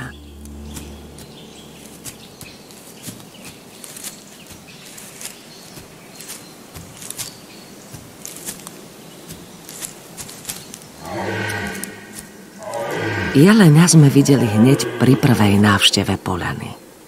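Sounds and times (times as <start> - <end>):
rustles and twig crackles: 0.0 - 15.6.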